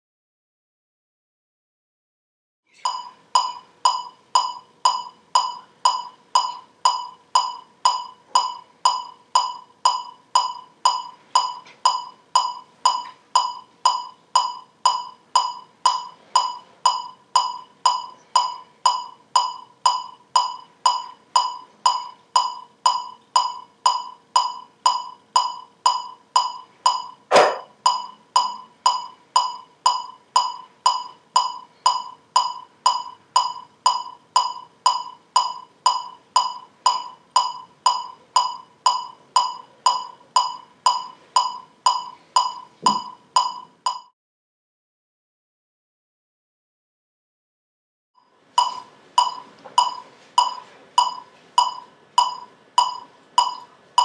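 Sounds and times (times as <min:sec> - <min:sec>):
metronome clicking: 0:02.8 - 0:44.1, 0:48.6 - 0:54.0
loud knock: 0:27.3 - 0:27.7.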